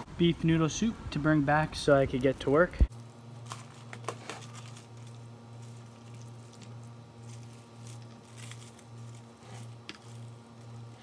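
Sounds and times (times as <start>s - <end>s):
plastic bag rustling: 2.9s - 11.0s.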